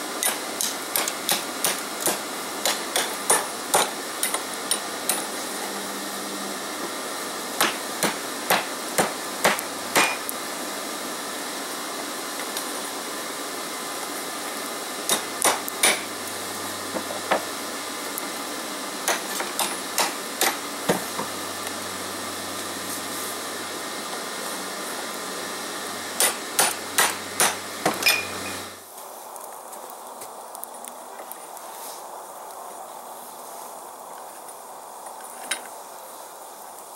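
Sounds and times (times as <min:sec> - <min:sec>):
hammer striking hot steel: 0:00.1 - 0:05.4, 0:07.5 - 0:10.4, 0:15.0 - 0:17.5, 0:19.0 - 0:21.4, 0:26.1 - 0:28.7.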